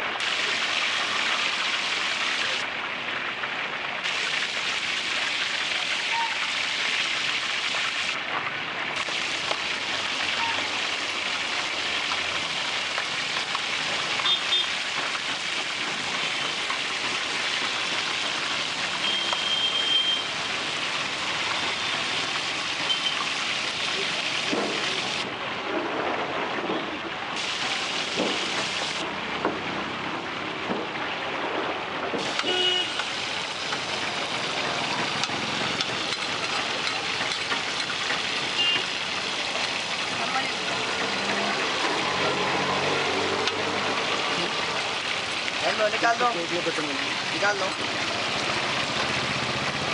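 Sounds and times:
fish sizzling in oil: 8.9s - 25.2s, 27.4s - 29.0s, 32.2s - 49.9s.

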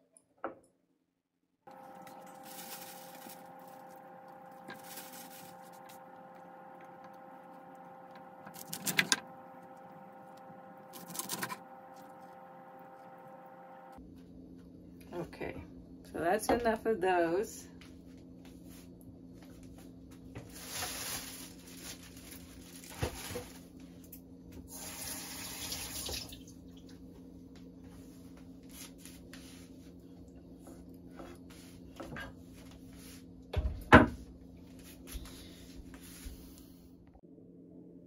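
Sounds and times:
tap water splashing into sink: 25.6s - 26.4s.

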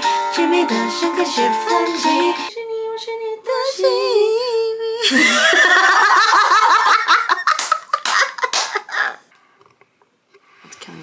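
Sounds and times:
woman singing unaccompanied: 0.0s - 5.2s
woman laughing: 5.0s - 9.3s.

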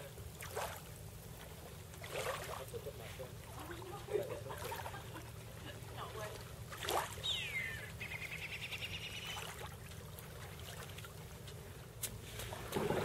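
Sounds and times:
low steady rumble: 0.0s - 13.0s
bird calling with trill: 7.2s - 9.6s.

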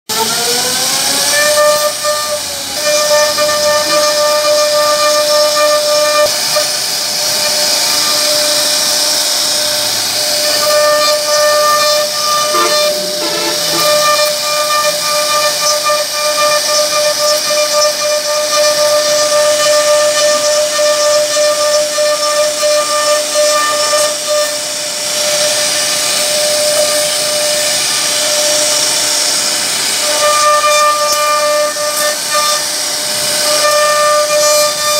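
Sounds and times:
router spindle whine: 0.1s - 34.9s
bit cutting wood hiss: 1.4s - 22.4s.

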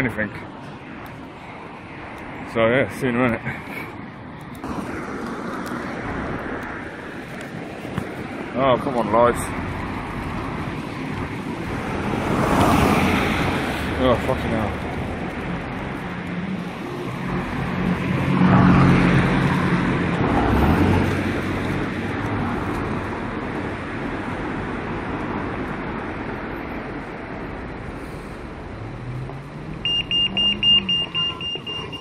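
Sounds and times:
road traffic passing: 0.0s - 32.0s
vehicle engine passing: 9.3s - 23.2s
crossing signal rapid beeping: 29.8s - 32.0s.

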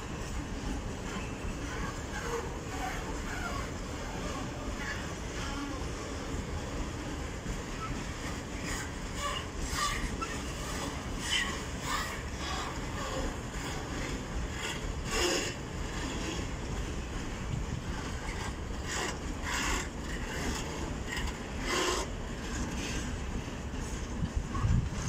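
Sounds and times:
train wheels rumbling on rail: 0.0s - 25.0s
wheels scraping and grinding: 7.0s - 25.0s.

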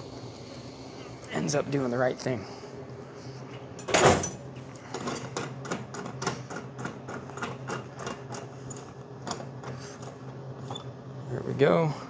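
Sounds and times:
machine low hum: 0.0s - 12.0s
vending machine door thudding shut: 3.9s - 4.4s.

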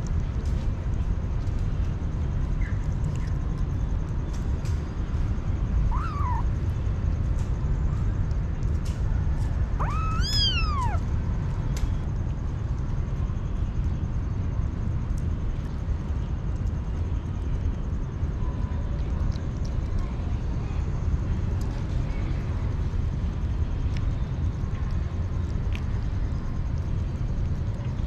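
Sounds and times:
kitten meowing: 5.9s - 6.5s, 9.8s - 11.0s.

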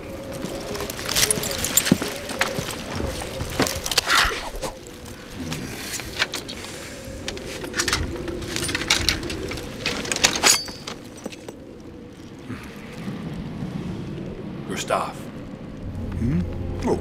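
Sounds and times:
metal weapons clanking: 10.2s - 11.0s.

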